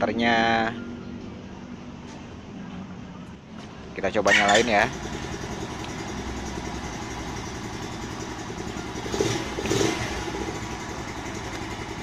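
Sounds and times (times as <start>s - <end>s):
motorcycle engine idling: 4.4s - 12.0s.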